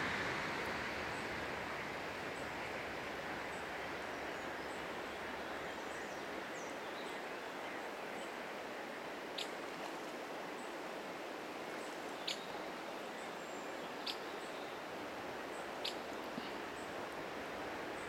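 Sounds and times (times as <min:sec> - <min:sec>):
river flowing over stones: 0:00.0 - 0:18.0
small birds chirping: 0:13.2 - 0:17.2.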